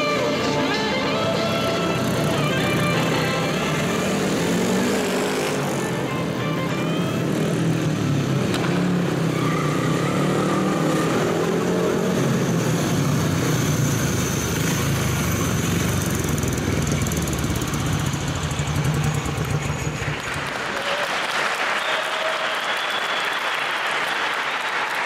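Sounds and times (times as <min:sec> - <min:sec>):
motorcycle engine running: 0:01.1 - 0:20.7.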